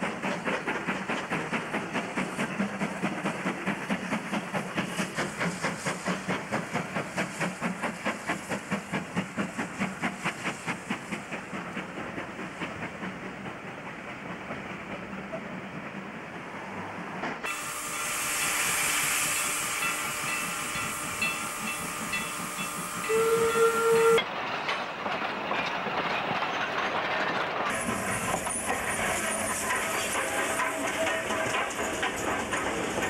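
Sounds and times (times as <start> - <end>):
steam locomotive hissing: 0.0 - 33.0
steam whistle blast: 17.5 - 24.2.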